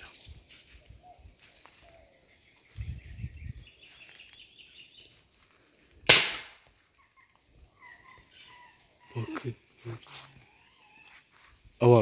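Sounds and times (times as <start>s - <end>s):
outdoor chirping: 0.0s - 12.0s
sharp loud bang: 6.1s - 6.6s.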